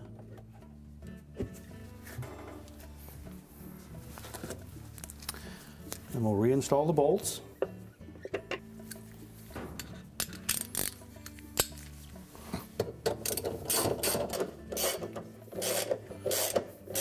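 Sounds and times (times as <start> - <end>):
socket ratchet clicking: 10.2 - 11.8, 13.1 - 17.0.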